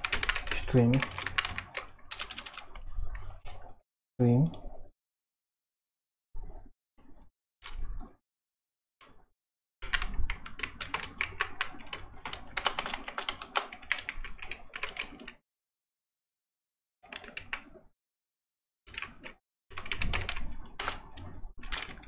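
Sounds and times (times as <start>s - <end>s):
typing on computer keyboard: 0.0s - 3.3s, 9.8s - 15.4s, 17.0s - 17.7s, 18.9s - 22.0s.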